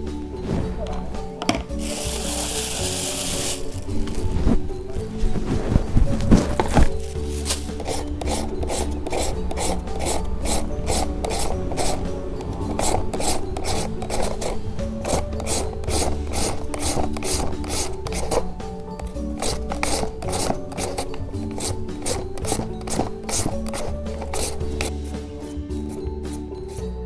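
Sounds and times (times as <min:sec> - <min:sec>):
papaya rasping on grater: 0:19.4 - 0:24.9.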